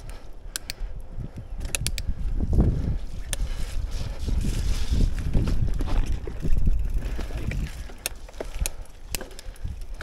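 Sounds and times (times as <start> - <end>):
wind buffeting microphone: 0.0 - 10.0
bike tyres rumbling on dirt: 2.1 - 10.0.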